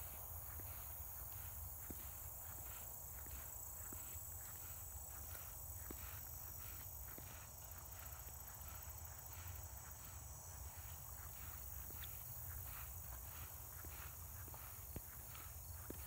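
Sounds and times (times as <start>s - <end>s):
footsteps through grass: 0.0s - 16.0s
insects droning: 0.0s - 16.0s.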